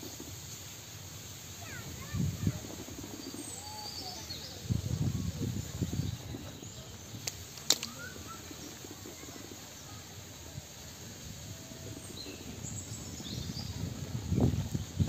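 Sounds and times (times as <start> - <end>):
steady background hiss: 0.0 - 15.0
faint bird chirps: 1.6 - 10.6
sharp click: 7.2 - 8.1.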